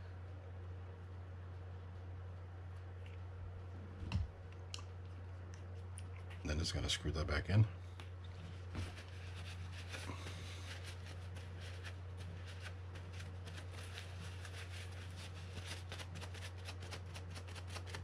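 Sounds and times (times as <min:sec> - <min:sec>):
steady low hum: 0:00.0 - 0:18.0
paper towel rubbing and rustling: 0:08.4 - 0:18.0.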